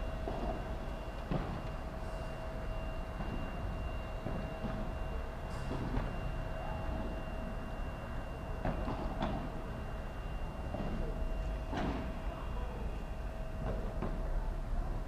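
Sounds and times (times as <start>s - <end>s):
thin high whine: 0.0s - 14.2s.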